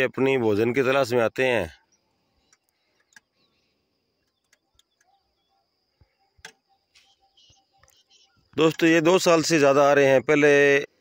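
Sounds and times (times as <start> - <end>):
faint insect hum: 0.0 - 11.0
faint clicks: 2.4 - 3.4, 4.2 - 5.2.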